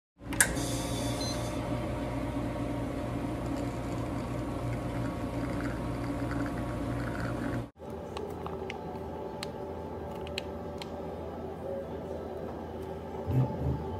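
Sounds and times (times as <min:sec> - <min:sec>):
espresso machine pump humming: 0:00.4 - 0:07.8.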